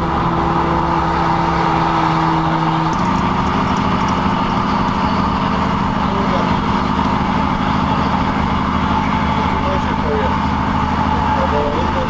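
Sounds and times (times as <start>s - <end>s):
faint light rattles: 2.9s - 6.2s.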